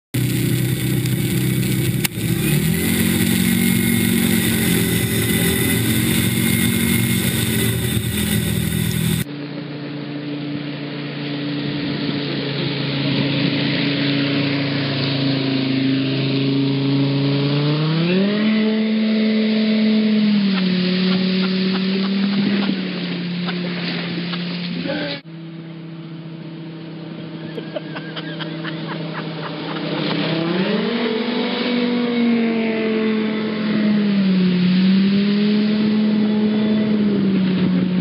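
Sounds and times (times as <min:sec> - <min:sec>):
car engine revving high: 0:00.2 - 0:09.3, 0:10.8 - 0:25.0, 0:28.4 - 0:38.0
water spray hissing: 0:00.2 - 0:09.3.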